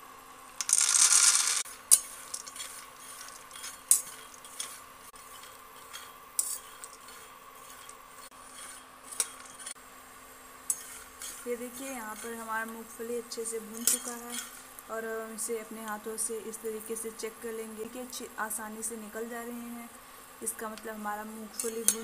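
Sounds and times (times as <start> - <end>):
faint steady hum: 0.0 - 22.0
peanuts poured into pan: 0.6 - 3.9
spatula scraping peanuts in pan: 0.7 - 9.8, 10.7 - 14.8, 21.5 - 22.0.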